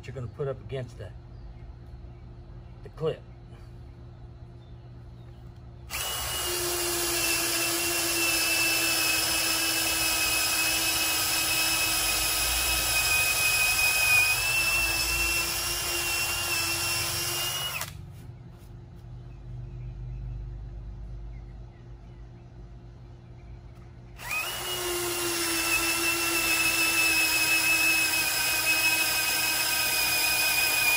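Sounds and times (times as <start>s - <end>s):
cordless drill boring through wood: 5.9s - 18.0s, 24.2s - 30.9s.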